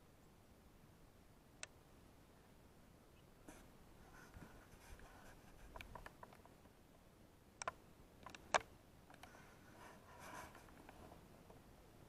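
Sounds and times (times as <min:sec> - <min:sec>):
sharp clicks: 0:07.6 - 0:09.4.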